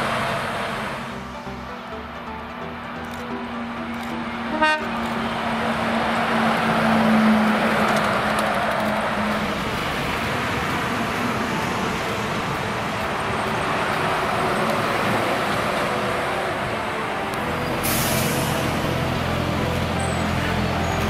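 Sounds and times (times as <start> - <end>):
deep engine drone: 0.0 - 21.0
trucks passing: 0.0 - 21.0
air brakes hissing: 17.6 - 19.0.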